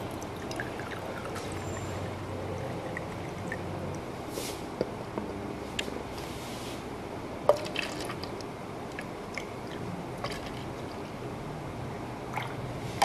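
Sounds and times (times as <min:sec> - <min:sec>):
liquid pouring into plastic cup: 0:00.0 - 0:03.7, 0:07.5 - 0:08.3, 0:08.9 - 0:11.1.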